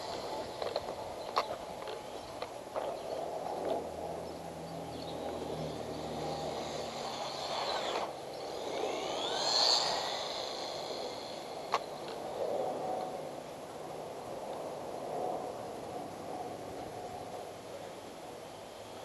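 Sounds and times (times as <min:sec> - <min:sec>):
electric motor whining: 0:00.0 - 0:01.0, 0:04.9 - 0:13.2
steady rushing noise: 0:00.0 - 0:19.0.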